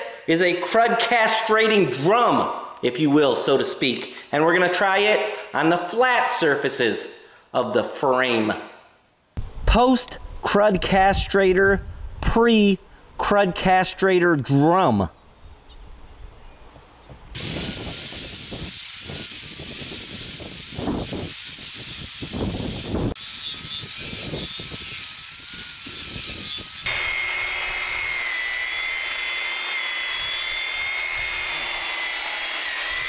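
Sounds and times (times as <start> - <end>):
drum sander motor whine: 17.4 - 33.0
sander scraping grind on metal: 17.4 - 33.0.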